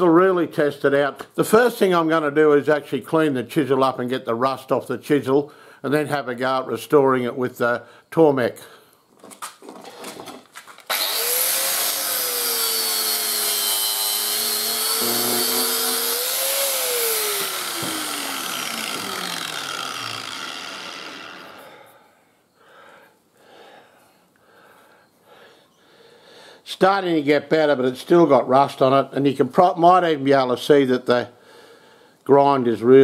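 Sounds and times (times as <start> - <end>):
angle grinder grinding metal: 10.9 - 21.8.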